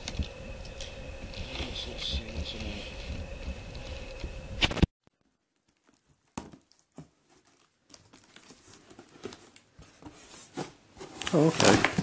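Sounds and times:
cardboard crinkling: 3.7 - 12.0
packing tape ripping: 11.2 - 12.0.

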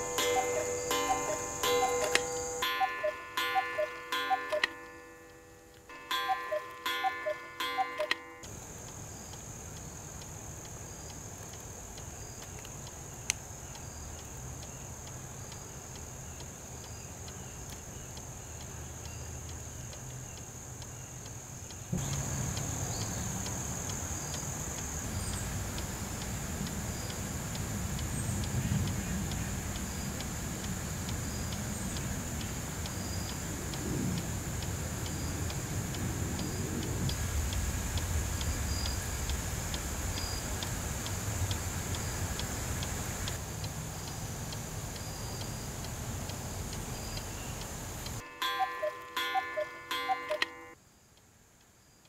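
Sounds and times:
bright plinking notes: 0.0 - 8.5, 48.2 - 50.8
clock ticking: 0.0 - 50.8
steady background hiss: 0.0 - 52.0.

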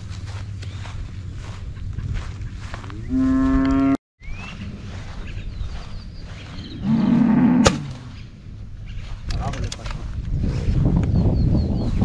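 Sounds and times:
cattle mooing: 3.0 - 4.0, 6.8 - 8.1.

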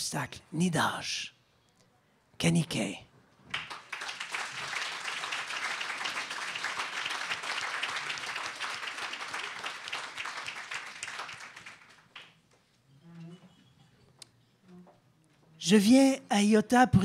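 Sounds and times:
audience applauding: 3.5 - 12.4.

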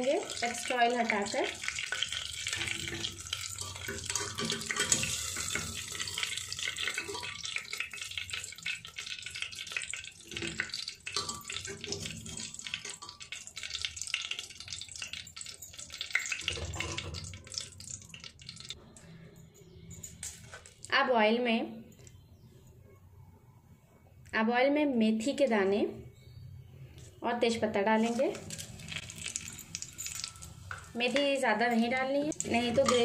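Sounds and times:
oil sizzling and crackling: 0.0 - 18.8, 27.9 - 33.0.

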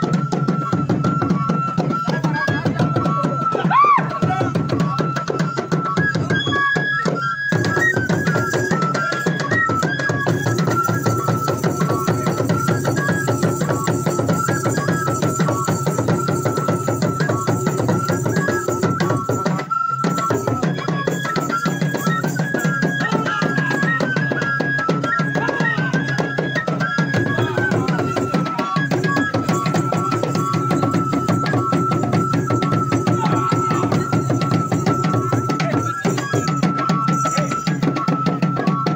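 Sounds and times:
drums in fast rhythm: 0.0 - 6.8, 7.5 - 38.9
high whistle: 0.0 - 38.9.

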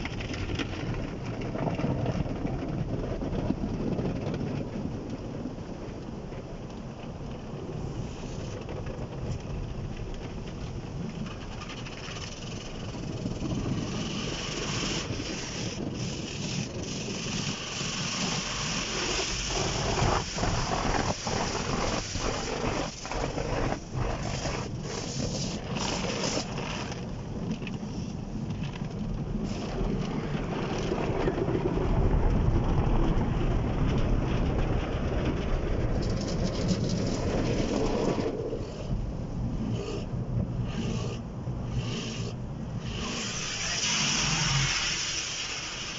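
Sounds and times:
water spraying on windscreen: 10.6 - 28.4, 36.2 - 45.9.

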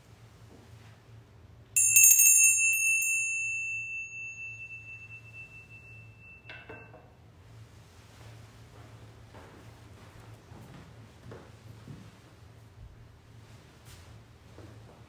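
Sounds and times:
small hand bell ringing: 1.8 - 7.0.

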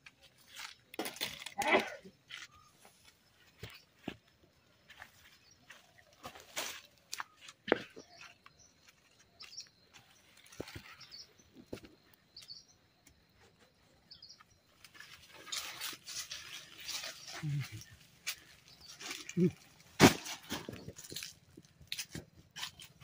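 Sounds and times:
twigs crackling and snapping: 0.0 - 2.6, 14.8 - 23.0
footsteps rustling through dry leaves: 5.7 - 7.5, 14.8 - 23.0.

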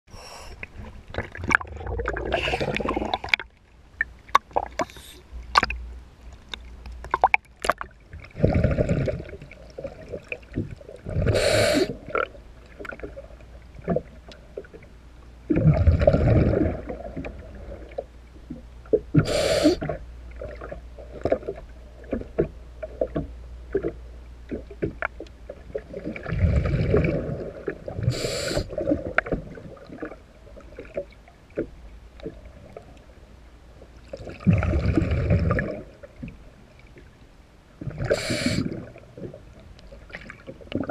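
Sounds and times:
exhaled bubbles rumbling: 0.6 - 5.9, 6.7 - 33.2, 34.0 - 36.5, 37.7 - 40.9
regulator inhalation hiss: 11.4 - 12.0, 19.2 - 19.8, 28.1 - 28.7, 38.1 - 38.7.

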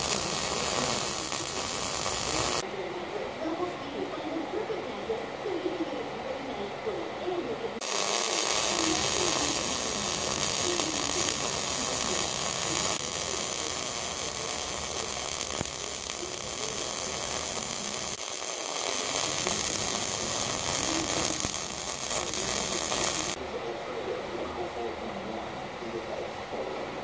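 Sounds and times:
welding arc hissing: 0.0 - 2.6, 7.8 - 23.4.

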